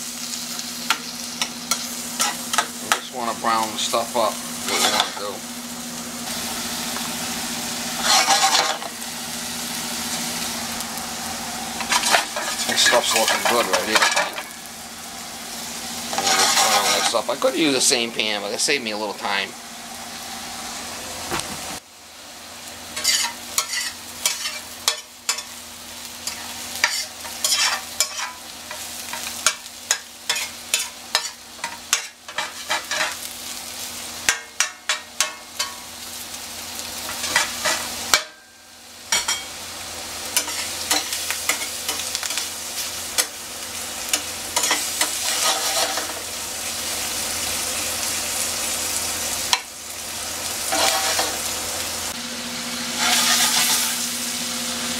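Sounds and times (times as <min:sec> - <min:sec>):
food sizzling in a skillet: 0:00.0 - 0:54.9
spatula scraping and knocking pan: 0:08.0 - 0:08.9, 0:11.8 - 0:14.5, 0:16.1 - 0:17.2, 0:23.0 - 0:25.5, 0:26.2 - 0:33.2, 0:40.4 - 0:42.4, 0:44.1 - 0:46.2, 0:50.7 - 0:51.4, 0:53.0 - 0:53.9.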